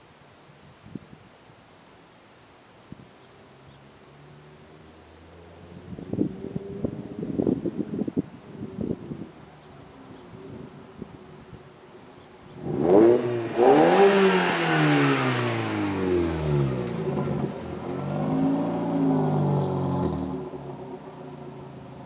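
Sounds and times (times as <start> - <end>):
car engine accelerating hard: 12.6 - 22.0.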